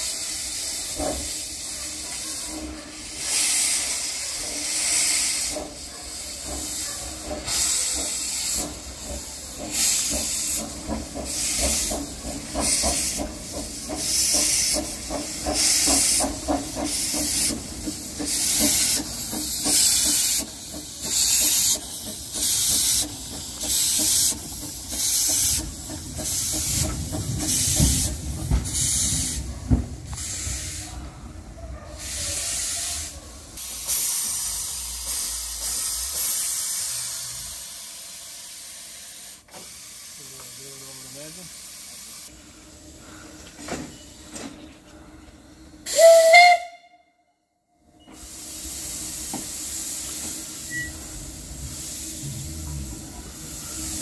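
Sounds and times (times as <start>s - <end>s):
steam hissing: 0.0s - 46.8s, 48.0s - 54.0s
steam locomotive exhaust chuffs: 0.0s - 47.0s, 48.0s - 54.0s
low rumble: 51.2s - 53.2s.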